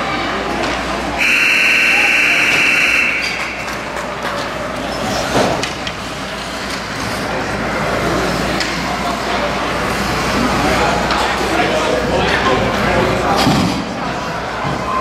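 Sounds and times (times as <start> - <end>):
rink background noise: 0.0 - 15.0
referee's whistle blast: 1.2 - 3.6.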